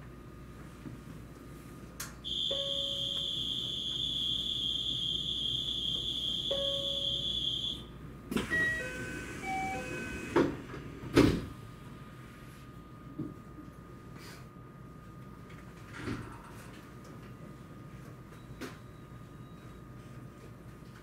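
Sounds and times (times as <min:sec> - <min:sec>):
departure buzzer: 0:02.3 - 0:10.4
electronic chime notes: 0:02.5 - 0:03.4, 0:06.5 - 0:07.3.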